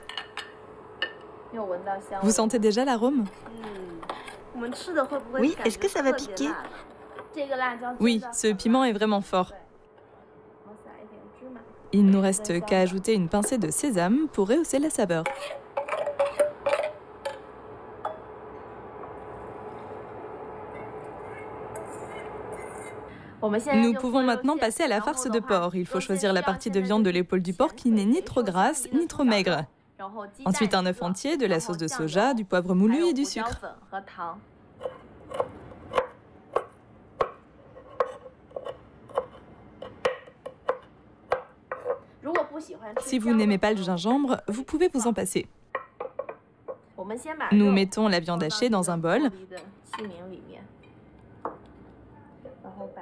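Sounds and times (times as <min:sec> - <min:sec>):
metal spoon scraping saucepan: 0:14.4 - 0:17.4, 0:20.7 - 0:23.1
knife chopping on wooden board: 0:34.8 - 0:42.0.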